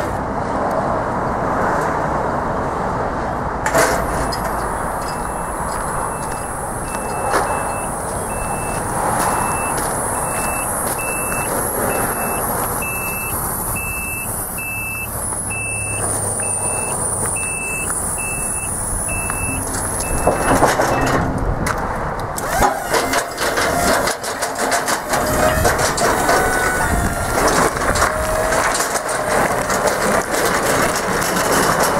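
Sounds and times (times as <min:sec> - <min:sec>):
clattering and crunching: 0:03.6 - 0:31.9
short high alarm beeps: 0:04.4 - 0:21.2.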